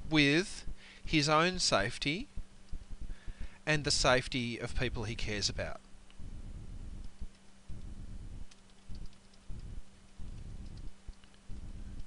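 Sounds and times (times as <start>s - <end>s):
faint low hum: 0.0s - 12.0s
keyboard typing: 8.5s - 11.4s.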